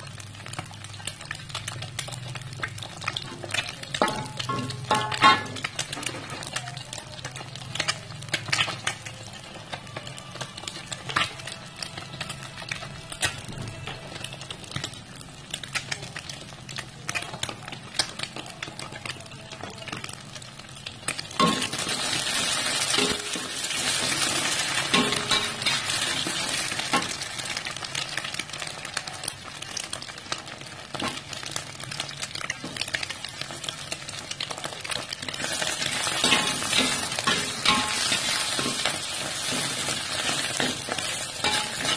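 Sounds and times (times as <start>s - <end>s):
food sizzling in a wok: 0.0s - 41.9s
metal spatula scraping a wok: 35.4s - 41.9s.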